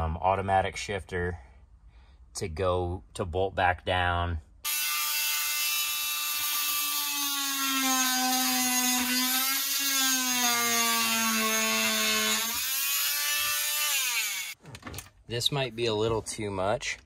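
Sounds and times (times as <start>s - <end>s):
oscillating multi-tool buzzing: 4.6s - 14.6s.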